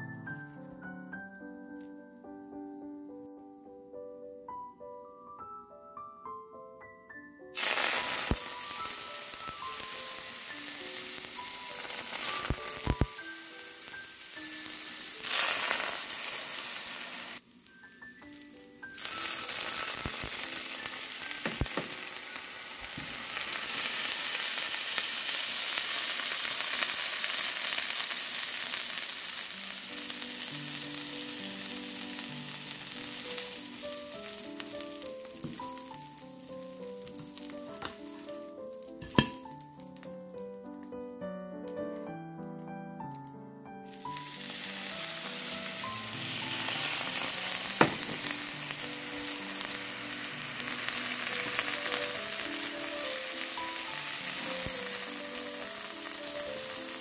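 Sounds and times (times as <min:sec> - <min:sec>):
milk sizzling in a hot pan: 0:07.6 - 0:40.8, 0:43.8 - 0:57.0.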